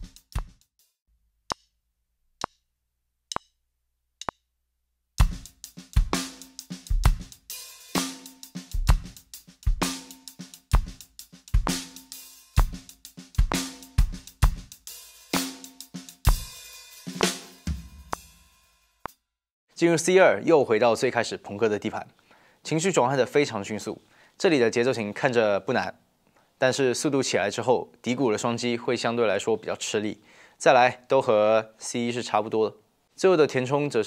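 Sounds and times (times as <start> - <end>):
drum kit groove: 0.0 - 0.8, 5.2 - 19.2.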